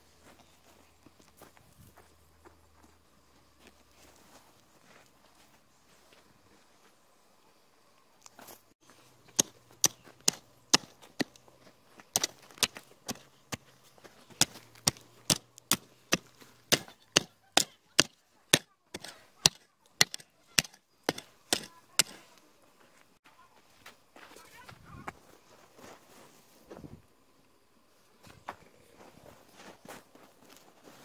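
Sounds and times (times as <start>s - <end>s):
hoe striking stony soil: 8.8s - 22.4s.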